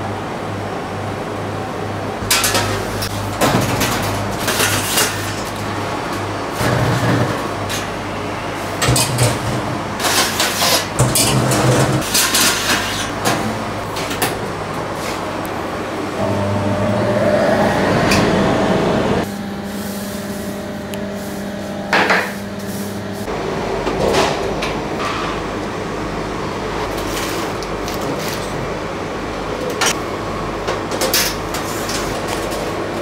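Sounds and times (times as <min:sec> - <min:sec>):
hum of ovens and fans: 0:00.0 - 0:33.0
metal trays clattering: 0:02.3 - 0:05.5.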